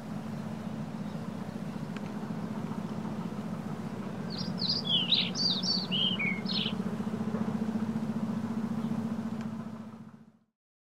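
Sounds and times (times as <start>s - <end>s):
car engine humming: 0.0s - 10.4s
small bird chirping: 4.3s - 6.8s.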